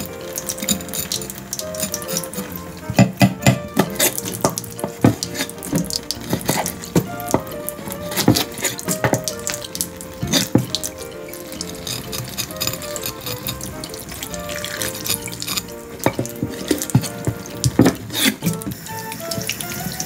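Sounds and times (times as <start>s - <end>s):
tap water running: 0.0s - 20.0s
knife knocking on cutting board: 2.9s - 7.6s.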